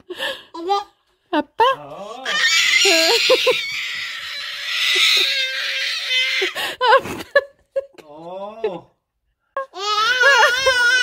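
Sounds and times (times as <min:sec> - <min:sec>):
baby squealing: 0:02.2 - 0:06.6, 0:09.8 - 0:11.0.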